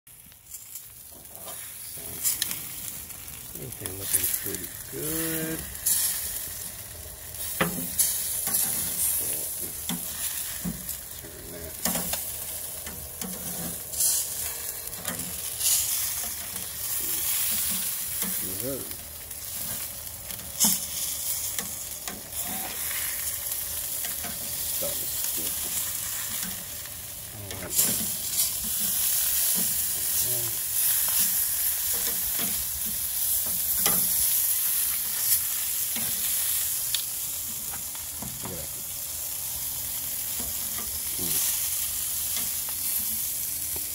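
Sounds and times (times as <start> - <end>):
chicken sizzling on grill: 0.1 - 43.9.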